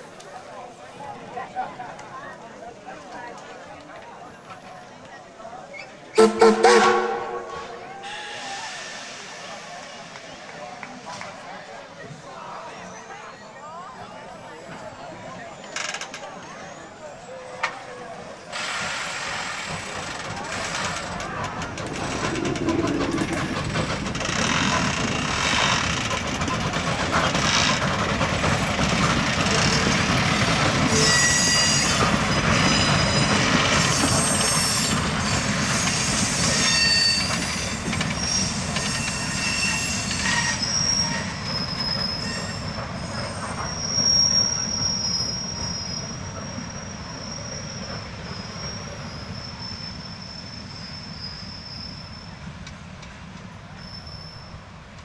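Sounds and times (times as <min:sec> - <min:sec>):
train wheels grinding and squealing: 0:03.9 - 0:55.0
steady high squeal: 0:20.0 - 0:25.7, 0:38.2 - 0:52.4.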